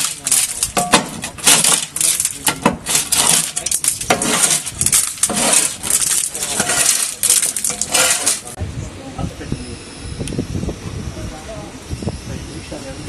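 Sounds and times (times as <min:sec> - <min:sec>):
scraper scraping boat hull: 0:00.0 - 0:08.6.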